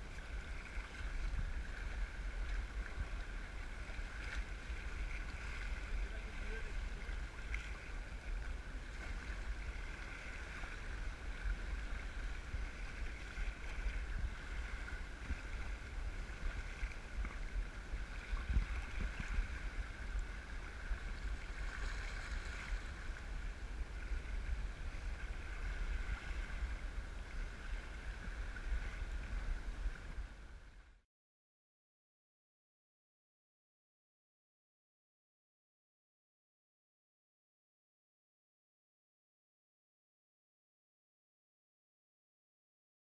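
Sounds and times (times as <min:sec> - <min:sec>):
water lapping against a kayak: 0:00.0 - 0:31.0
wind rumbling on microphone: 0:00.0 - 0:31.0.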